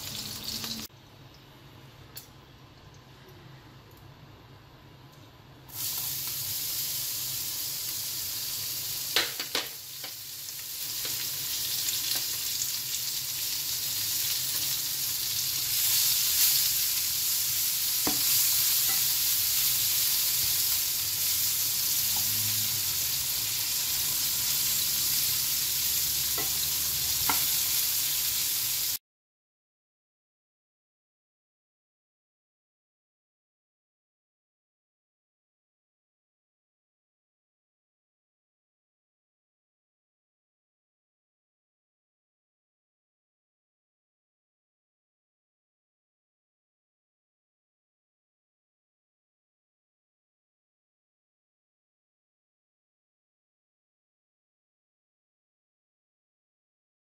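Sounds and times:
onions sizzling in hot oil: 0.0s - 0.9s, 5.7s - 29.0s.

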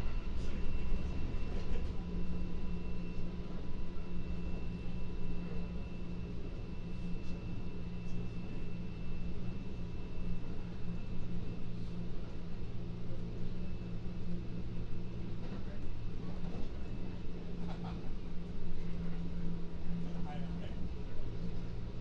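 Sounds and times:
electric train interior rumble: 0.0s - 22.0s.

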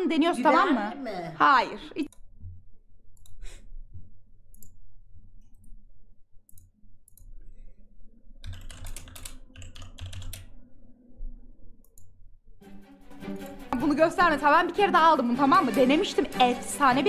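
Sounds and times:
keyboard typing: 8.4s - 10.6s.

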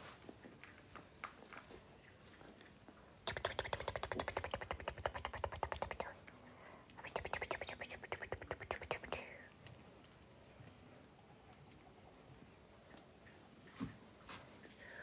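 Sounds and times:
puppy wet suckling clicks: 3.3s - 6.2s, 7.0s - 9.8s.

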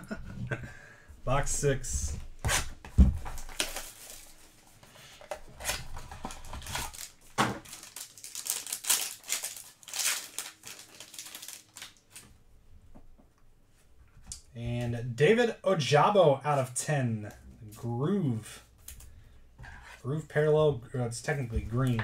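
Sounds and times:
foil pack crinkling: 3.3s - 4.5s, 5.7s - 12.2s.

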